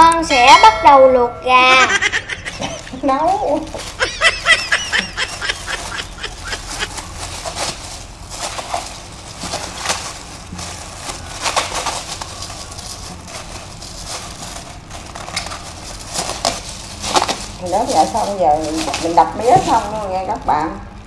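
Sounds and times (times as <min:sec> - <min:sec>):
sugarcane being smashed: 0:03.6 - 0:19.8.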